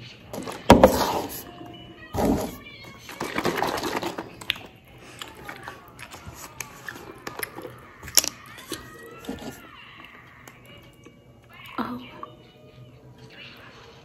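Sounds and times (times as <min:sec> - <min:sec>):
carton rustling and crinkling: 0:02.2 - 0:04.5.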